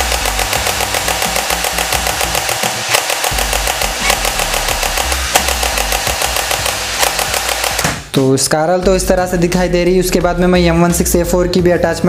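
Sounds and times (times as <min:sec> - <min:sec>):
toy rifle motor clattering: 0:00.0 - 0:07.8.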